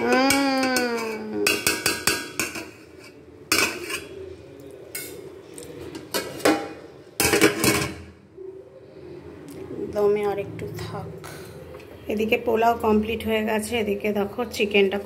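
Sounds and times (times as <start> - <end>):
metal spoon scraping a pot: 0.0 - 8.2.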